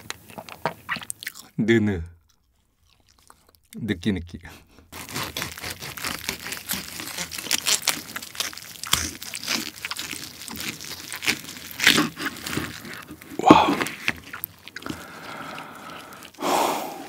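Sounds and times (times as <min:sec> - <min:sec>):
knife crunching through crisp skin: 0:04.9 - 0:17.0.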